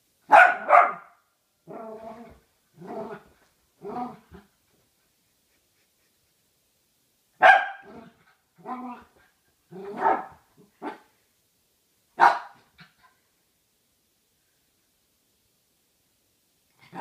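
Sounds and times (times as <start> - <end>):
small dog barking: 0.3 - 1.2, 7.4 - 8.1, 9.8 - 11.1, 12.2 - 12.6.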